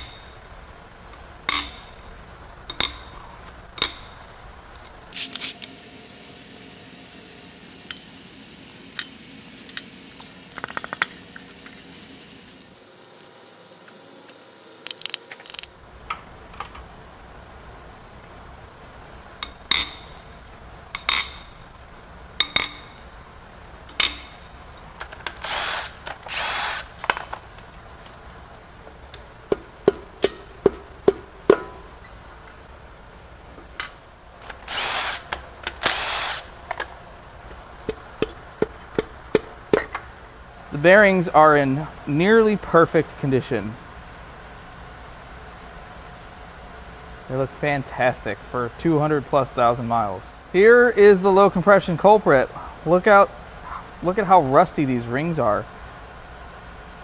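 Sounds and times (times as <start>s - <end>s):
ringing metal clinks: 1.5s - 2.1s
impact wrench bursts: 23.9s - 27.4s, 34.4s - 36.9s.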